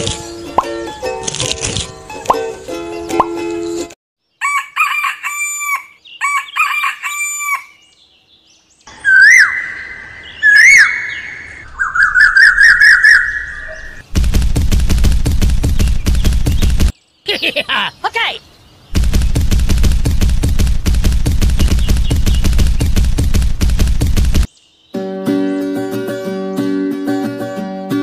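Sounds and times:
rooster crowing: 0:04.4 - 0:07.8
fast even rattle: 0:14.1 - 0:16.9, 0:19.0 - 0:24.5.

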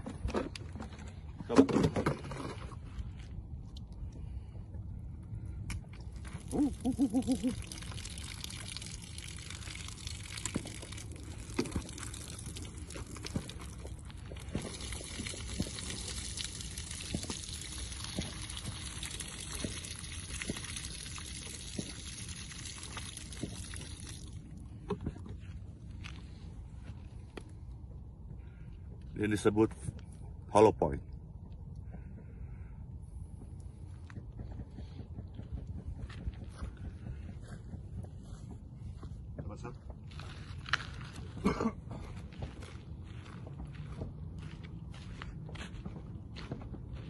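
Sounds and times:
water pouring from jugs: 0:06.0 - 0:25.1
water glugging: 0:06.2 - 0:25.1.

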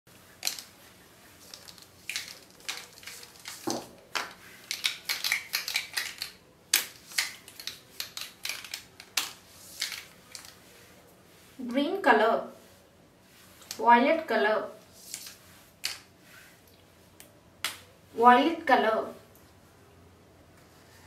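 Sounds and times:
marker pens clicking and tapping: 0:00.4 - 0:00.8, 0:01.4 - 0:10.6.

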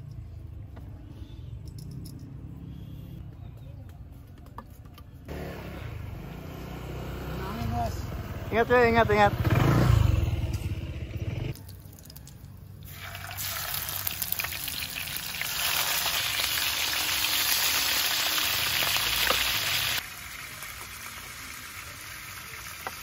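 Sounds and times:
scooter engine running: 0:05.3 - 0:11.6
fish frying in hot oil: 0:12.9 - 0:23.0.

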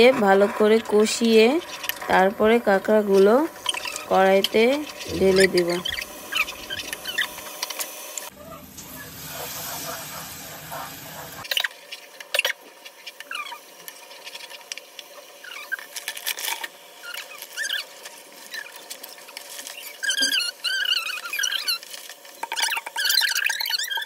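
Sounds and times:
spatula squeaking and scraping pan: 0:00.0 - 0:07.9, 0:08.5 - 0:11.6, 0:17.0 - 0:24.0
paste sizzling in a pot: 0:00.0 - 0:24.0.

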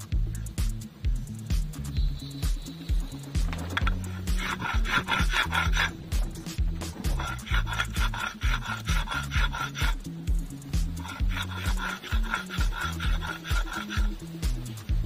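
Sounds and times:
stone grinding on stone slab: 0:03.4 - 0:14.8.

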